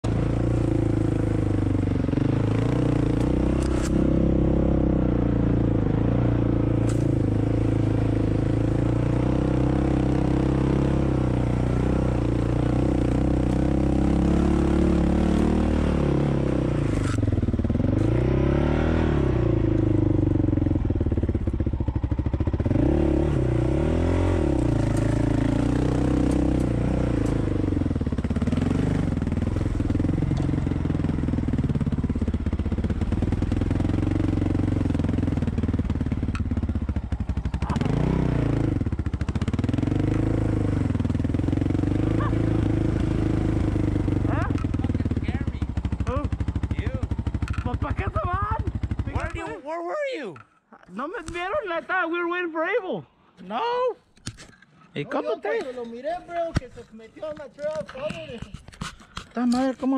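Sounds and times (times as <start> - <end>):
off-road vehicle engine revving: 0.0 - 49.8.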